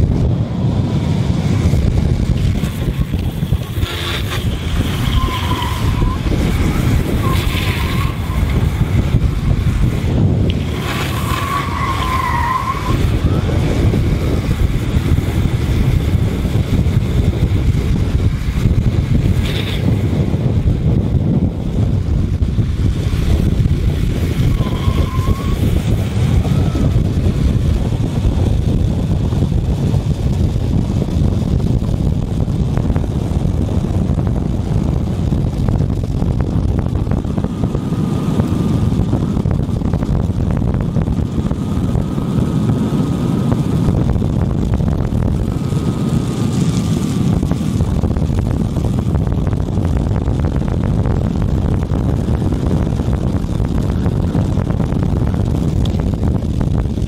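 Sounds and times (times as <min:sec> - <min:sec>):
wheels rolling on asphalt: 0:00.0 - 0:57.0
wind rushing over microphone: 0:00.0 - 0:57.0.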